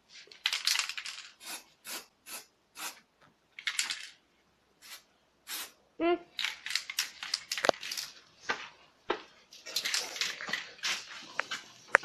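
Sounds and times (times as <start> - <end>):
spray paint can hissing: 1.4 - 3.0, 4.8 - 5.7.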